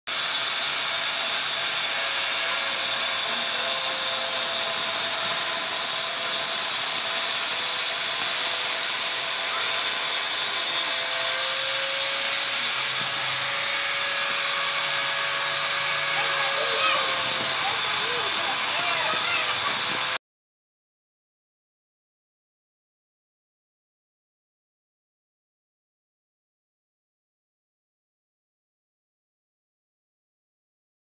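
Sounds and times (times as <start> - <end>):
angle grinder whining: 0.1 - 20.2.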